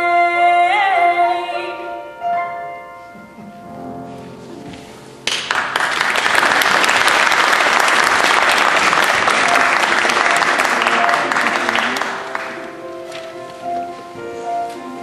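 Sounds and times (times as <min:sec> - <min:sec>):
music: 0:00.0 - 0:15.0
audience applauding: 0:05.2 - 0:12.8.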